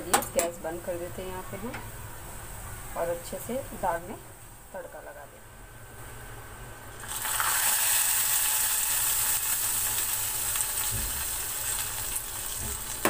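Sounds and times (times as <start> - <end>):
hot oil sizzling loudly: 6.9 - 13.0.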